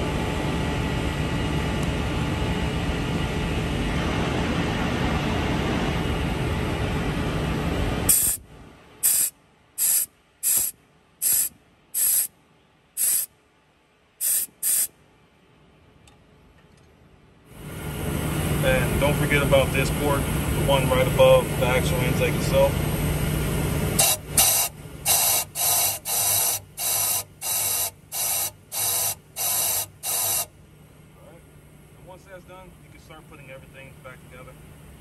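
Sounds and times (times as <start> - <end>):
compressed air blasts: 8.1 - 8.4, 9.0 - 12.3, 13.0 - 13.3, 14.2 - 14.9, 24.0 - 30.5.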